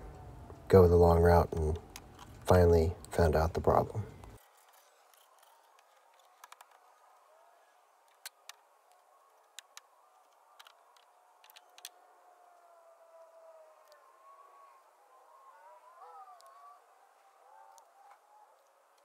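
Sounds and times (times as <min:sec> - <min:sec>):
faint clicks: 0:04.1 - 0:19.0.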